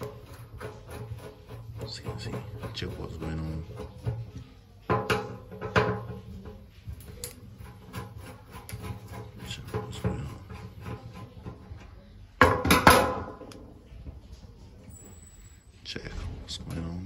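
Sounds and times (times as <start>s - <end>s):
loud rasping noise: 0.0s - 4.0s.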